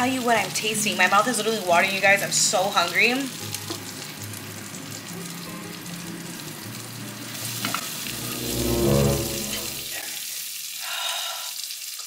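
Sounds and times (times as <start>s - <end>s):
fish sizzling in a frying pan: 0.0s - 8.1s, 10.0s - 12.0s
low hum: 8.0s - 10.0s.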